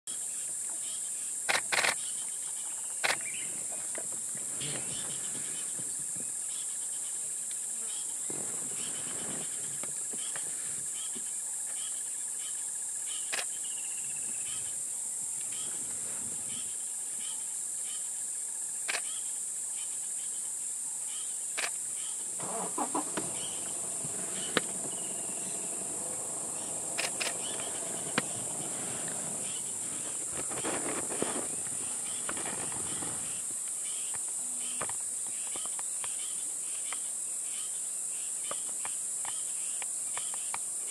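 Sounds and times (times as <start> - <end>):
high-pitched insect drone: 18.9 - 40.9
short chirping call: 22.1 - 29.8
sharp clicks: 27.0 - 28.3.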